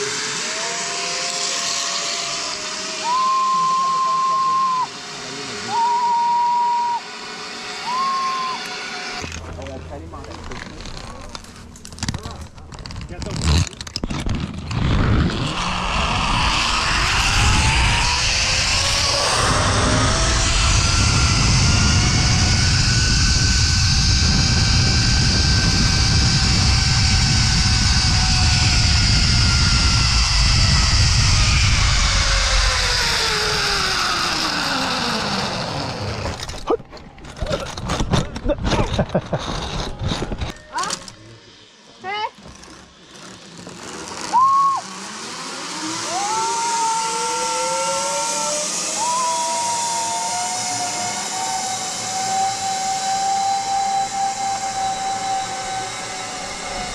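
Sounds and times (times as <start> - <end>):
high squeal: 0.0 - 9.2, 15.3 - 36.0, 44.2 - 45.4, 46.0 - 56.9
zipline pulley whine: 0.0 - 56.9
wind on microphone: 14.1 - 34.0.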